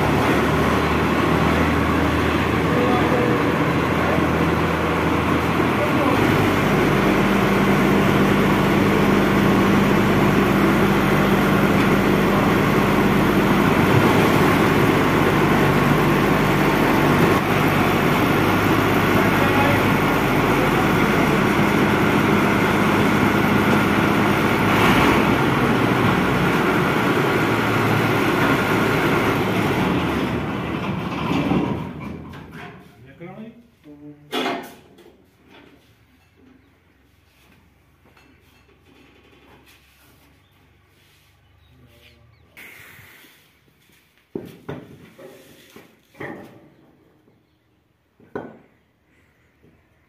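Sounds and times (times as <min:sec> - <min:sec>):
combine harvester diesel engine: 0:00.0 - 0:33.0.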